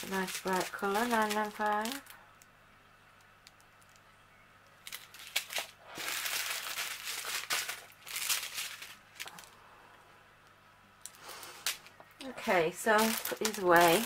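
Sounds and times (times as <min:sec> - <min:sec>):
plastic bags crinkling: 0:00.0 - 0:02.5, 0:03.2 - 0:04.1, 0:04.7 - 0:09.6, 0:11.0 - 0:14.0.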